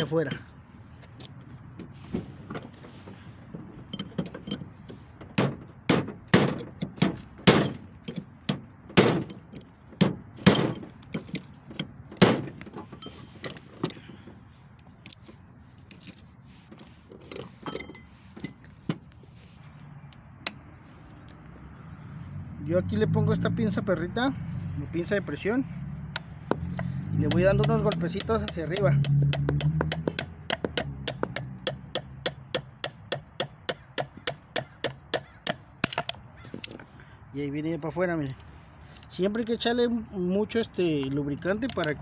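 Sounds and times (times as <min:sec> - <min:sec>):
light metal taps and clinks: 0:03.8 - 0:05.0, 0:13.0 - 0:15.3, 0:17.2 - 0:19.0, 0:41.0 - 0:42.0
hammer striking metal punch: 0:05.4 - 0:07.9, 0:10.0 - 0:10.9, 0:27.3 - 0:36.2.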